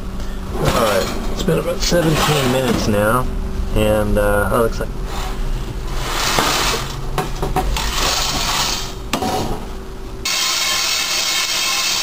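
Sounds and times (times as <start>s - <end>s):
coffee beans rattling in metal colander: 7.8s - 9.0s.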